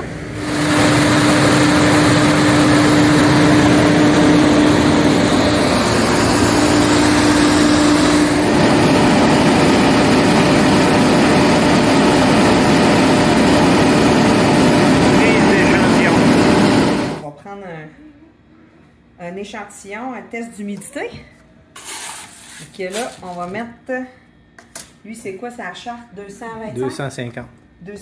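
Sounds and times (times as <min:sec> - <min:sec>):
grain dryer fan blowing: 0:00.0 - 0:17.3
constant hum: 0:00.0 - 0:21.7.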